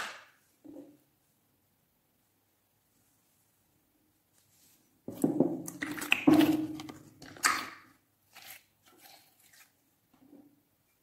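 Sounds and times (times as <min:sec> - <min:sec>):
slime squelching and clicking: 0:05.6 - 0:07.9.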